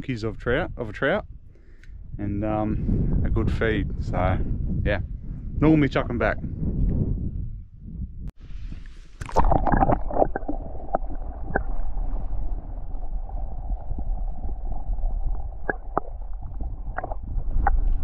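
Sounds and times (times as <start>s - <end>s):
underwater rumble of water: 8.1s - 18.0s.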